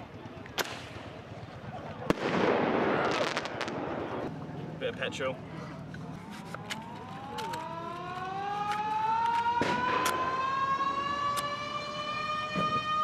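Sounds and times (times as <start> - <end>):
fireworks cracking: 0.5 - 4.3
mechanical siren wailing: 6.3 - 13.0.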